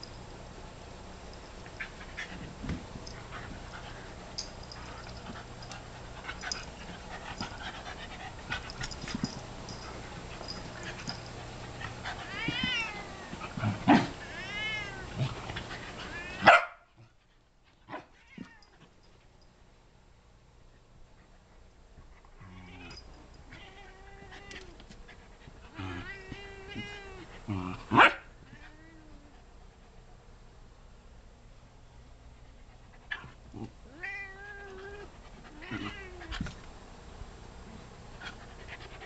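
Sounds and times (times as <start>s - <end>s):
animals scuffling on carpet: 1.6s - 16.4s
cat meowing: 12.2s - 13.3s, 14.2s - 15.1s, 33.9s - 36.3s.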